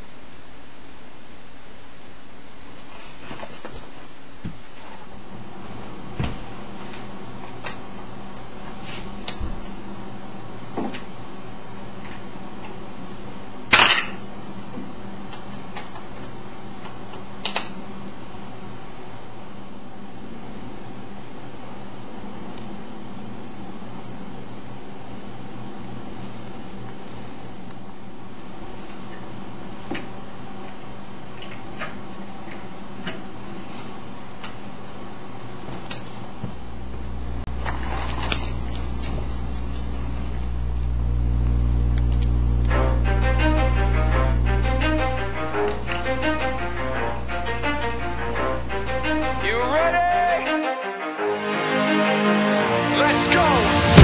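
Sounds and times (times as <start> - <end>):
steady low hum: 36.6 - 49.4.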